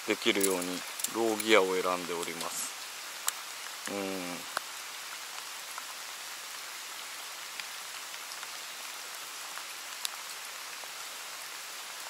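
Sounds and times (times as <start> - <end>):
raindrops ticking: 0.0 - 5.9, 9.5 - 10.4
steady rain hiss: 0.0 - 12.0.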